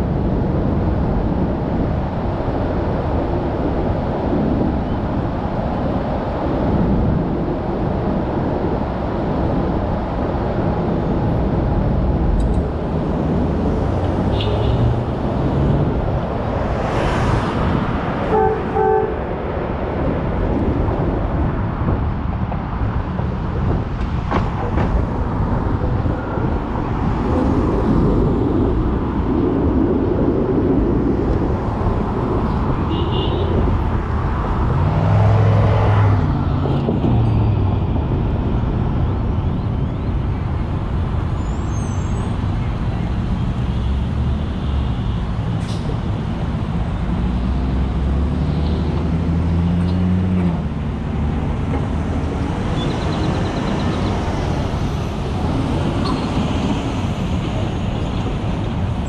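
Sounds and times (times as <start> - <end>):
streetcar wheels and motor rumbling: 0.0 - 59.0
streetcar horn toot: 18.3 - 19.2, 32.9 - 33.7.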